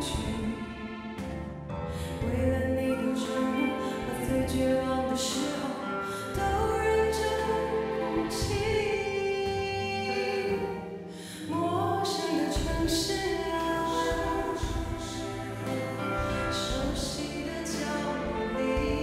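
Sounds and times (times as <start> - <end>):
woman singing slow song: 0.0 - 0.7, 2.2 - 19.0
instrumental backing: 0.0 - 19.0.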